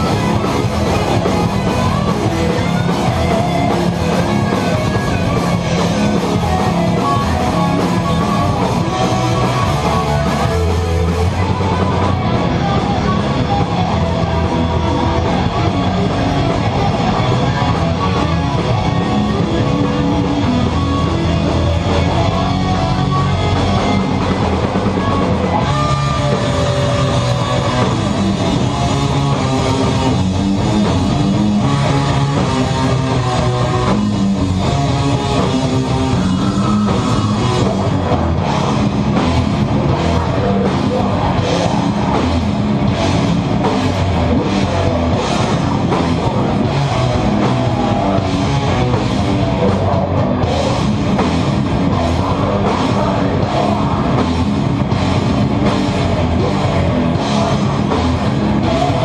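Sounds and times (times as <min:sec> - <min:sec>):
metal band playing live: 0:00.0 - 0:59.0.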